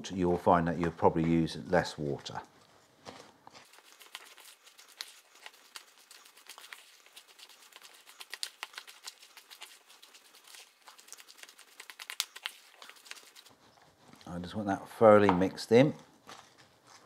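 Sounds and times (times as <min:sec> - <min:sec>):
sticky batter crackling: 0:00.8 - 0:17.0.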